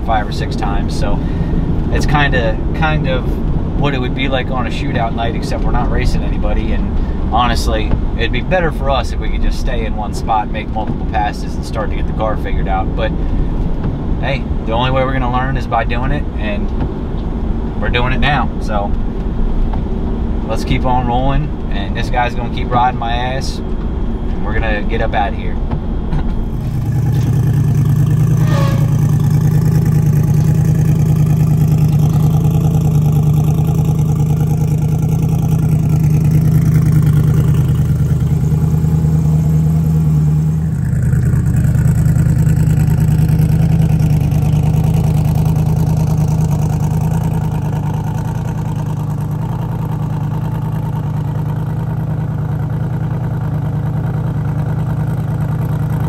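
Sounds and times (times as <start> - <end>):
car engine idling: 0.0 - 56.0
car engine running: 0.0 - 56.0
falling turbo whistle: 26.5 - 31.3.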